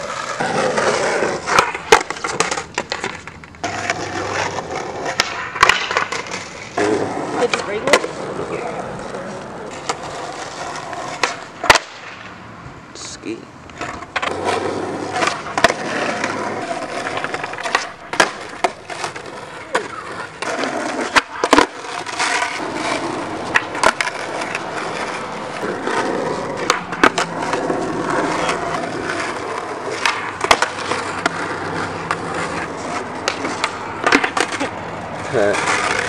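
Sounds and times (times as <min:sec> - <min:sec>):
skateboard clacks: 0:00.0 - 0:12.3, 0:13.7 - 0:36.0
skateboard wheels rolling on asphalt: 0:00.0 - 0:36.0.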